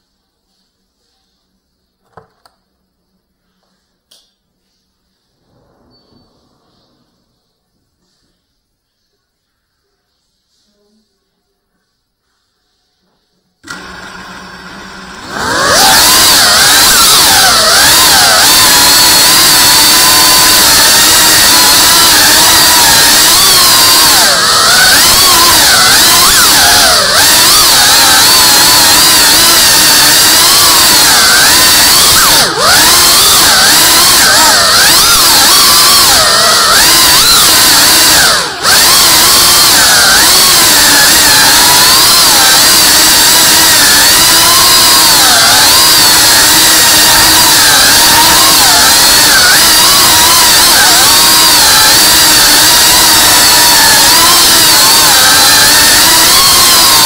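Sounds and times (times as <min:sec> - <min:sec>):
quadcopter motors whining: 0:15.2 - 0:57.0.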